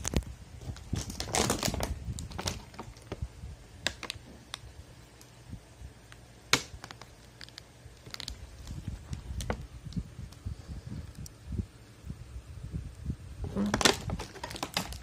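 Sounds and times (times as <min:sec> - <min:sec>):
plastic bag crinkling: 0:00.0 - 0:03.2, 0:06.7 - 0:09.7, 0:13.6 - 0:15.0.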